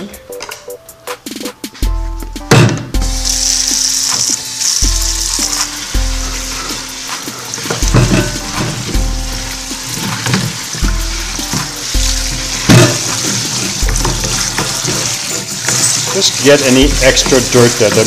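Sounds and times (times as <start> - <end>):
hip-hop music loop: 0.0 - 3.2, 4.8 - 9.9, 10.6 - 12.8
faucet sprayer hissing: 3.0 - 18.0.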